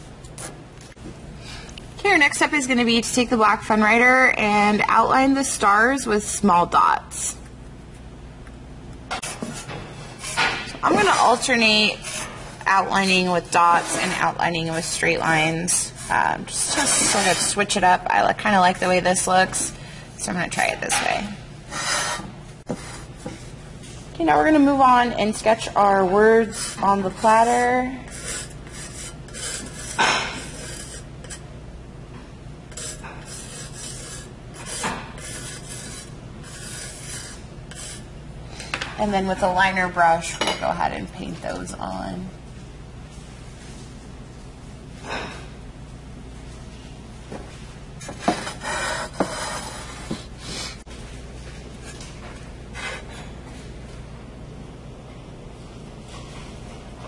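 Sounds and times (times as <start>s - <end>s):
low room hum: 0.0s - 57.0s
pencil scratching on ceramic: 15.3s - 17.7s, 21.7s - 23.4s, 26.4s - 31.4s, 32.7s - 38.0s, 48.2s - 50.2s.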